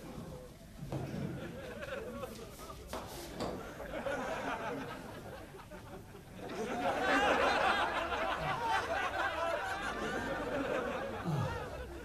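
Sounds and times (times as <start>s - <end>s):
low room noise: 0.0s - 12.0s
people laughing: 1.0s - 12.0s.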